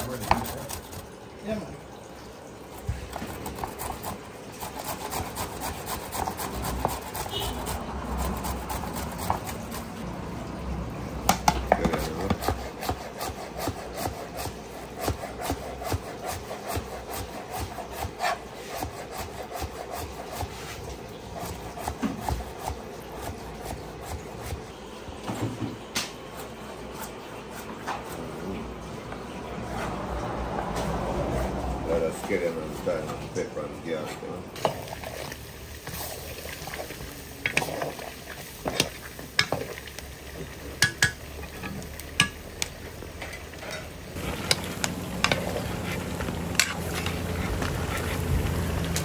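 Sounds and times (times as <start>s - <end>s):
rapid scraping strokes: 0.0s - 1.1s, 2.8s - 10.1s, 12.0s - 24.6s, 44.2s - 49.0s.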